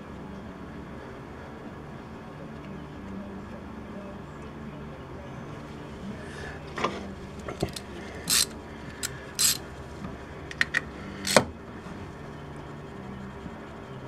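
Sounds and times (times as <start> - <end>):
hand ratchet clicking: 7.6 - 9.6, 10.5 - 11.4.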